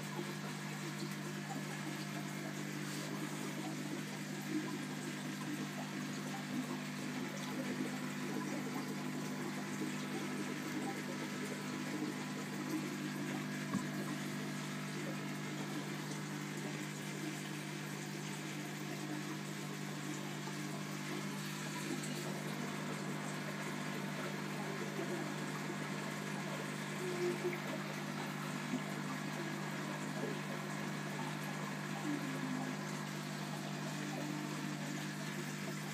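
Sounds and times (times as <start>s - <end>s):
aquarium pump humming: 0.0s - 35.9s
water bubbling and trickling: 0.1s - 35.9s.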